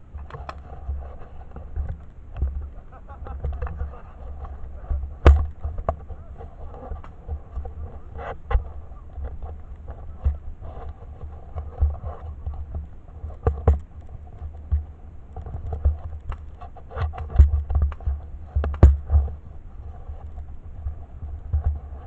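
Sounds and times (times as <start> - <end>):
rustling: 0.0 - 22.0
sharp knocks: 5.2 - 6.1.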